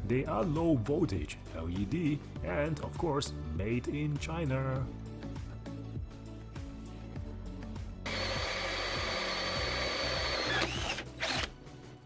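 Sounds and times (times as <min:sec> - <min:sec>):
background music: 0:00.0 - 0:12.0
cordless drill whining: 0:08.0 - 0:11.6.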